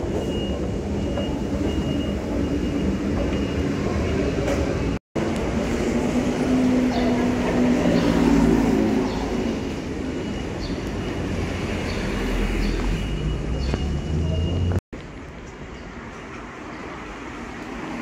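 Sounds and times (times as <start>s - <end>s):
quiet street ambience: 0.0s - 18.0s
passing vehicles rumbling: 4.5s - 18.0s.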